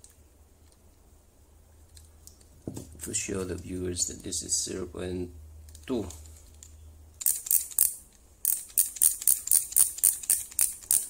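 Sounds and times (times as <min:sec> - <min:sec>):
micrometer ratchet clicking: 0:07.2 - 0:11.0.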